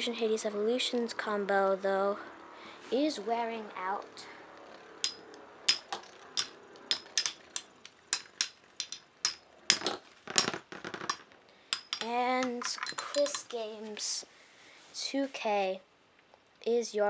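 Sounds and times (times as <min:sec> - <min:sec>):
spinning tops clashing: 0:04.7 - 0:13.4.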